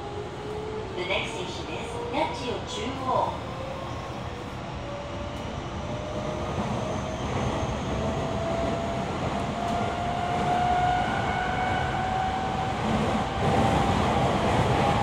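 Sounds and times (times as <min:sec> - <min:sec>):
train wheels rumbling on rails: 0:05.0 - 0:15.0.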